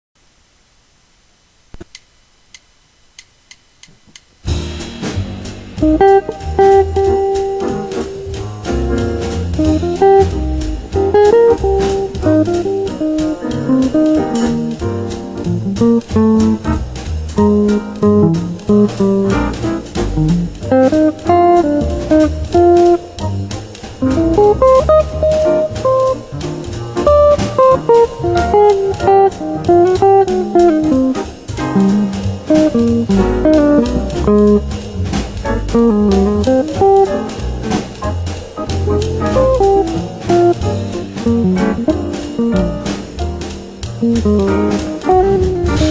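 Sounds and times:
faint clicks: 0:01.7 - 0:04.3
bass line: 0:04.5 - 0:45.9
electric guitar jazz: 0:04.5 - 0:45.9.

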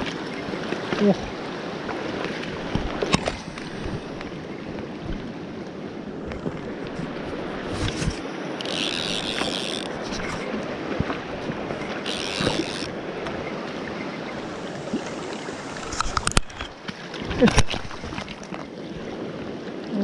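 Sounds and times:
mountain stream rushing: 0:00.0 - 0:19.6
camera rubbing and knocks: 0:06.2 - 0:12.9, 0:15.8 - 0:16.8
sharp clicks: 0:12.0 - 0:12.9
short high-pitched buzzes: 0:12.0 - 0:12.9.

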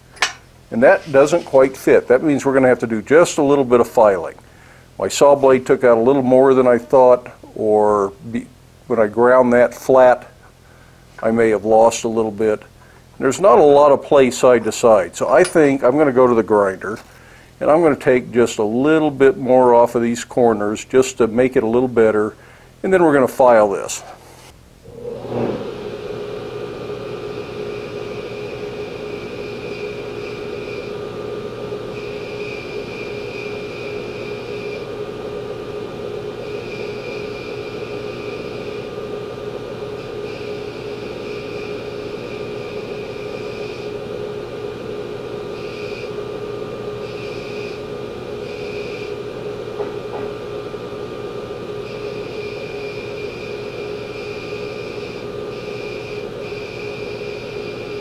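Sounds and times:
steel grinding hiss: 0:00.0 - 0:02.3, 0:47.0 - 0:49.2
belt grinder humming: 0:00.0 - 0:02.8, 0:24.8 - 0:58.0.

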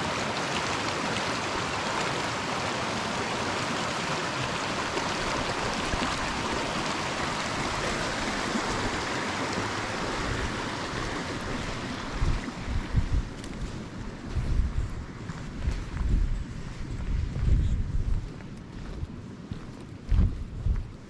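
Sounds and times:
stream rushing over rocks: 0:00.0 - 0:16.2.

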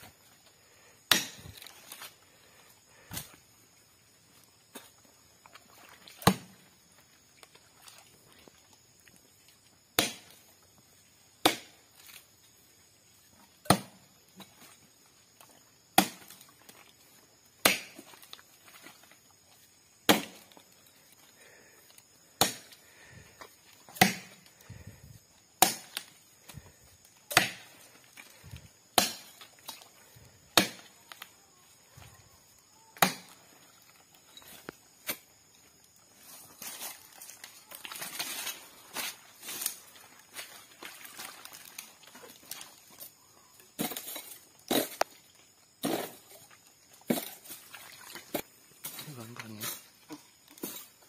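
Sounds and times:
machete chopping palm trunk: 0:01.0 - 0:02.1, 0:06.1 - 0:06.7, 0:09.9 - 0:10.4, 0:11.3 - 0:12.2, 0:13.6 - 0:14.5, 0:15.9 - 0:16.5, 0:17.5 - 0:18.2, 0:20.0 - 0:20.6, 0:22.3 - 0:22.8, 0:23.9 - 0:24.6, 0:25.5 - 0:26.1, 0:27.2 - 0:27.9, 0:28.8 - 0:29.8, 0:30.4 - 0:31.0, 0:33.0 - 0:33.4, 0:45.8 - 0:46.2.

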